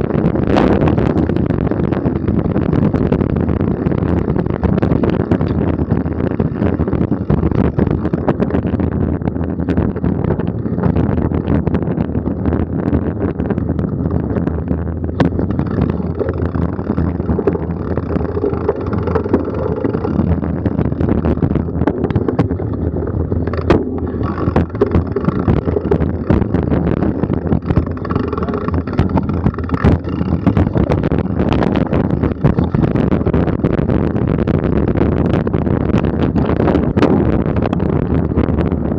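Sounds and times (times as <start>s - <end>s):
bike rattling over bumps: 0.0s - 38.9s
wind on microphone: 0.0s - 38.9s
tyres rumbling on dirt: 13.1s - 38.9s.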